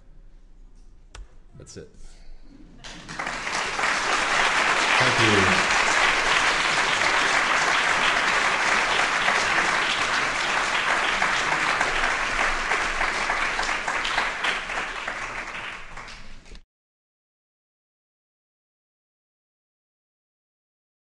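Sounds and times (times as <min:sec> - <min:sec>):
audience applauding: 0:02.8 - 0:16.6.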